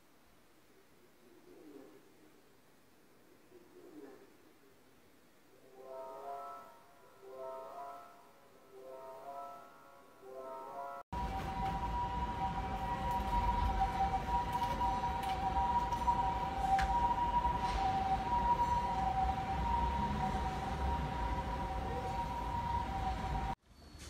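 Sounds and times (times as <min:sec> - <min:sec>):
two-tone siren: 0:11.1 - 0:23.6.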